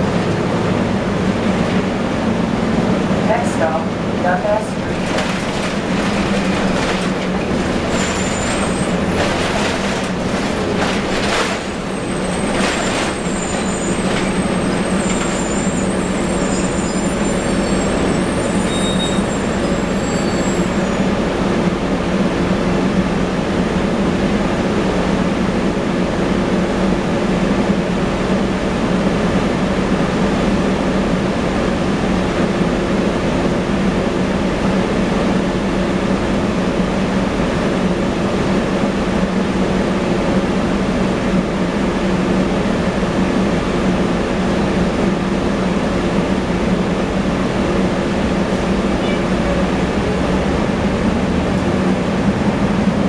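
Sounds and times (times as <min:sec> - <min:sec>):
bus engine hum: 0:00.0 - 0:53.0
road noise: 0:00.0 - 0:53.0
knocks and rattles: 0:04.8 - 0:15.6
faint high squeal: 0:11.9 - 0:21.0.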